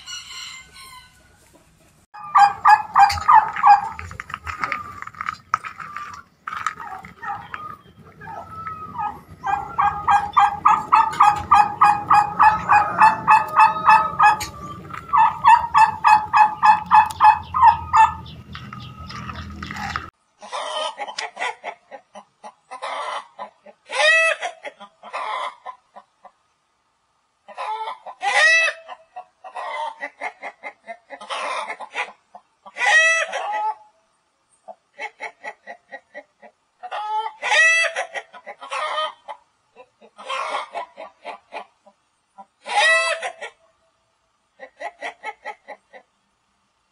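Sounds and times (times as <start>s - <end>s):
chickens clucking: 0.0s - 26.7s, 27.4s - 34.0s, 34.6s - 43.9s, 44.5s - 46.3s
turkey calling: 2.2s - 20.1s.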